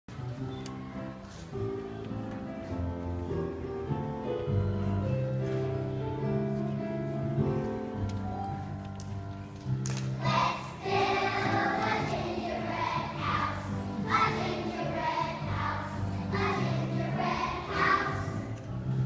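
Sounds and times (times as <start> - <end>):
children's choir singing: 10.2 - 18.6.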